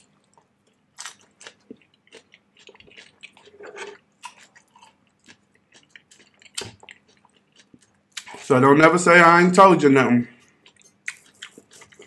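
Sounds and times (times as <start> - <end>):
person chewing food: 0.0 - 8.5, 10.4 - 12.0
wet mouth clicks and lip smacks: 5.3 - 8.4, 10.7 - 12.0.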